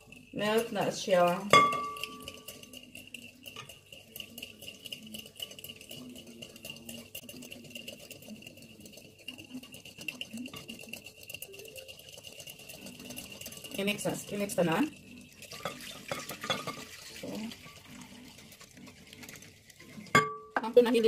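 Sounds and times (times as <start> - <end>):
yeast crumbling crackles: 0.0 - 20.2.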